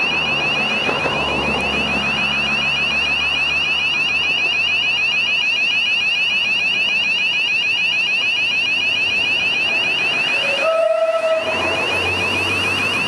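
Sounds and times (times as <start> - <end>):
passing car engine: 0.0 - 5.0, 8.9 - 13.0
level-crossing warning alarm: 0.0 - 13.0.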